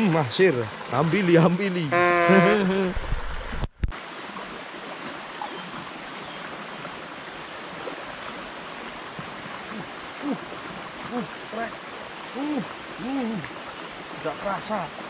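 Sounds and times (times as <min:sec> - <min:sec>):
man's drawn-out voice: 0:01.9 - 0:02.9.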